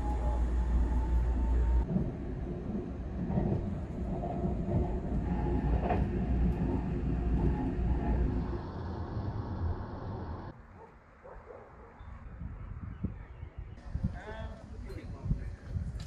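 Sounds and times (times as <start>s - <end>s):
train wheels rumbling on rails: 0.0s - 10.5s.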